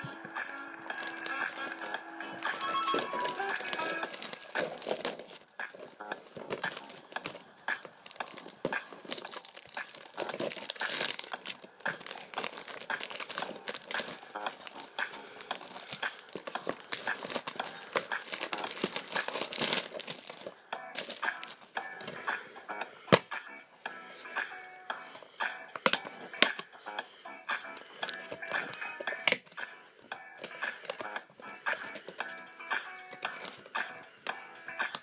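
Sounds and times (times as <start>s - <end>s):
plastic shrink-wrap crinkling: 0.4s - 22.2s, 27.8s - 29.4s.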